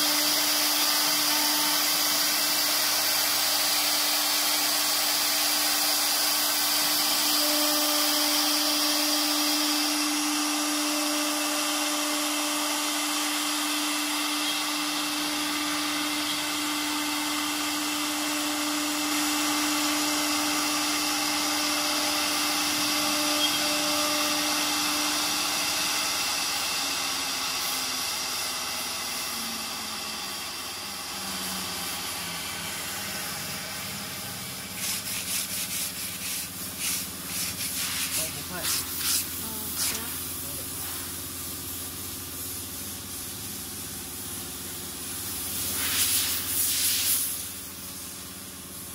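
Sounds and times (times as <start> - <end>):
wood router spindle whine: 0.0 - 48.9
cutting hiss: 21.3 - 48.4.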